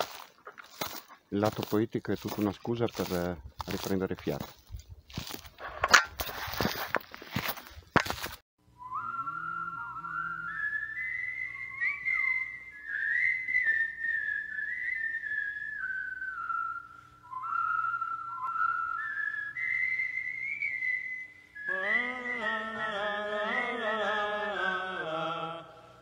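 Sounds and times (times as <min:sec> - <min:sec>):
faint low drone: 0:08.7 - 0:19.5
whistled melody: 0:08.7 - 0:22.8.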